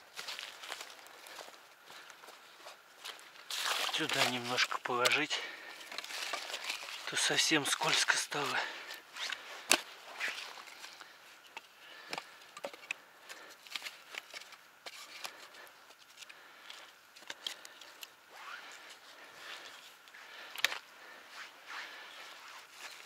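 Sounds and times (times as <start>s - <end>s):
dry branches cracking and rustling: 0.1s - 2.4s, 3.0s - 18.8s.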